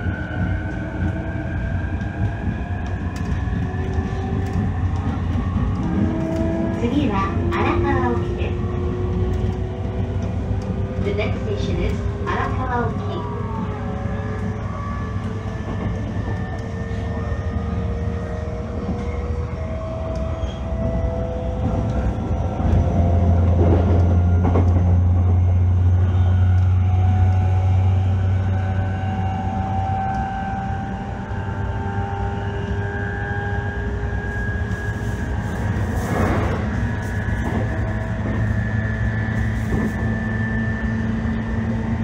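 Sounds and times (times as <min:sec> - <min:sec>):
wheel and rail noise: 0:00.0 - 0:42.0
electric train motor whine: 0:13.4 - 0:42.0
heavy low rumble: 0:34.3 - 0:42.0.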